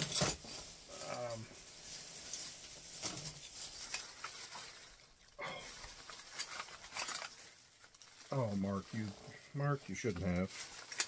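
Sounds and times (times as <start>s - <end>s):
paper wrapping crinkling: 0.0s - 11.0s.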